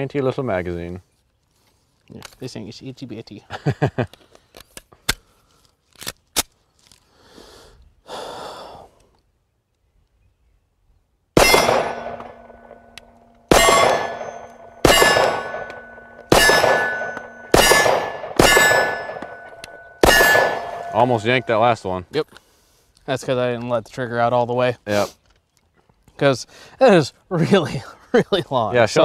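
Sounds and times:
pistol shots: 0:11.4 - 0:21.6
steel plate target ringing: 0:11.4 - 0:21.8
pistol handling clicks: 0:11.7 - 0:20.5.

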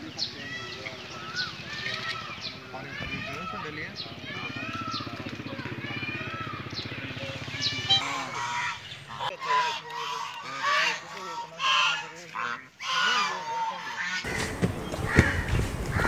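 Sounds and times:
geese honking: 0:07.1 - 0:16.0.

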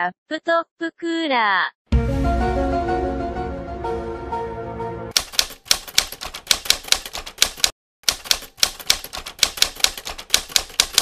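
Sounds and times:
music: 0:01.9 - 0:05.1
keyboard typing clicks: 0:05.1 - 0:11.0.

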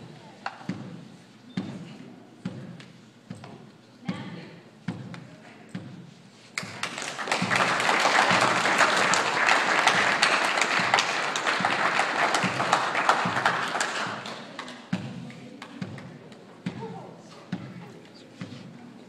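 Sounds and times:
audience applauding: 0:06.6 - 0:14.8.

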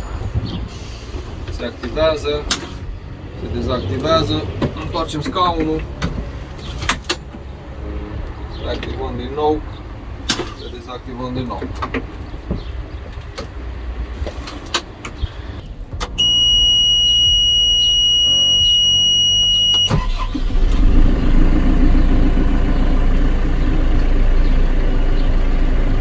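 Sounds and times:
diesel engine starting and idling: 0:00.0 - 0:10.9, 0:15.6 - 0:26.0
high electronic warning tone: 0:16.2 - 0:20.0.

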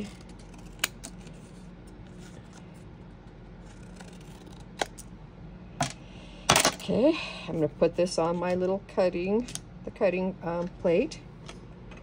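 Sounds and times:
scissors snipping paper: 0:03.6 - 0:05.0.

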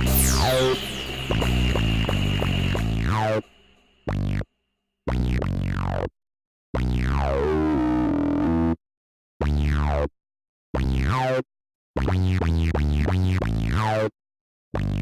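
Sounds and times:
electronic music bursts: 0:00.0 - 0:04.3.

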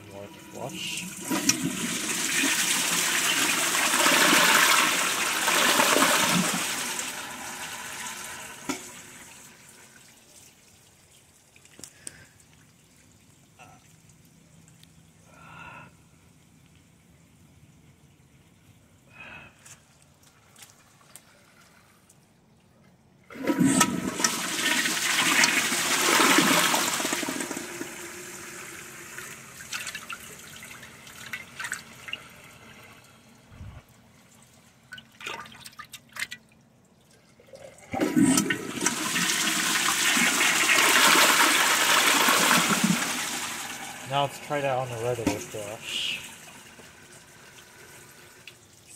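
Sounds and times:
toilet flushing: 0:00.0 - 0:10.4, 0:23.3 - 0:33.2, 0:37.4 - 0:48.9.

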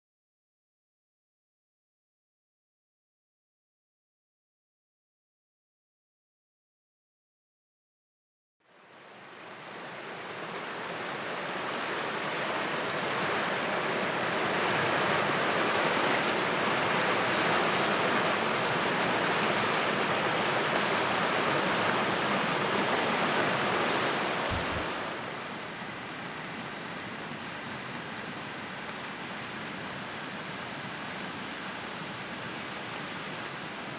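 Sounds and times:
river rushing over stony bed: 0:08.7 - 0:33.9.

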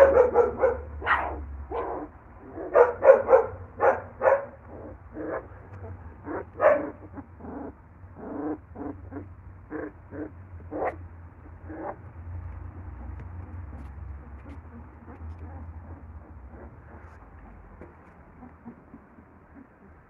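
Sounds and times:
puppies squealing and whining: 0:04.6 - 0:12.1, 0:12.7 - 0:20.0.

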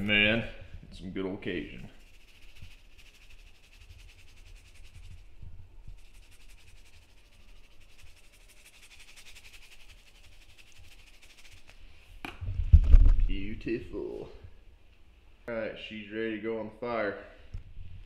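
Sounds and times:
seasoning shaker rattling: 0:01.5 - 0:11.8.

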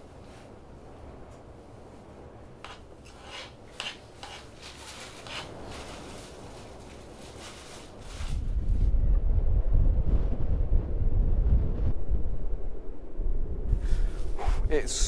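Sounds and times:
low steady background noise: 0:00.0 - 0:15.0
utensil scraping a cooking pot: 0:02.6 - 0:05.6.

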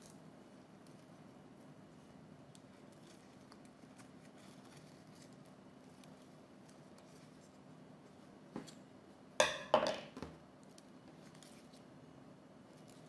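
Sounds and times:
kitchenware tapping: 0:09.4 - 0:10.3.

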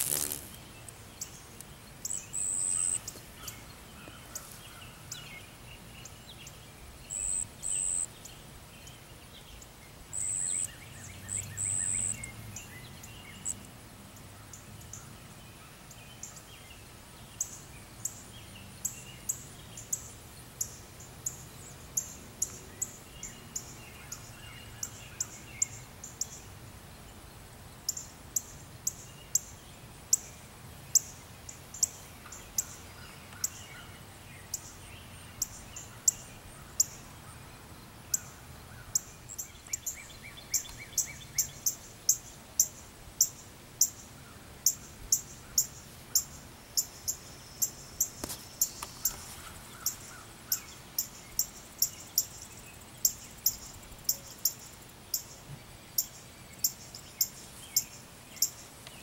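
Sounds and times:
faint bird calls: 0:02.0 - 0:06.2.

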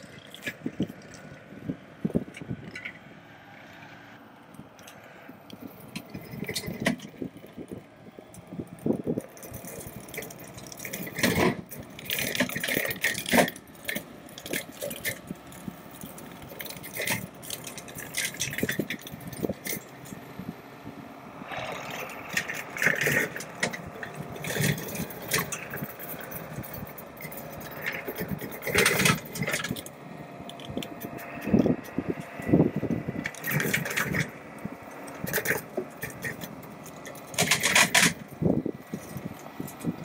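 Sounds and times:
steady machine noise: 0:00.0 - 0:40.0
woody stems cracking and snapping: 0:09.2 - 0:20.2, 0:21.5 - 0:32.5, 0:33.2 - 0:38.2.

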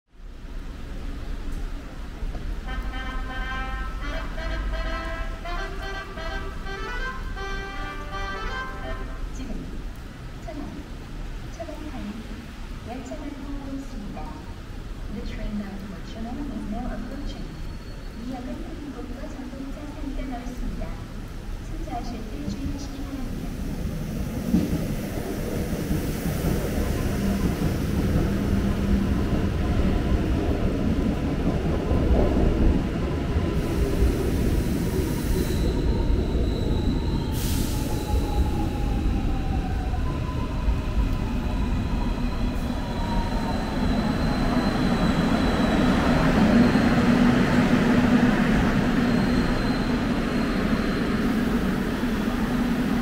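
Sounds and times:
train wheels rumbling on rail: 0:00.3 - 0:53.0
high squeal: 0:17.1 - 0:18.3, 0:34.9 - 0:52.2.

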